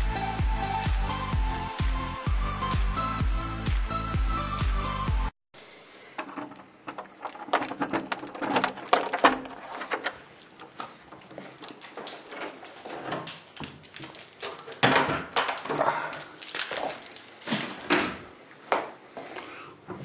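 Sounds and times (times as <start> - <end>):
lock clicking: 6.2 - 11.8
keys rattling: 6.2 - 18.1.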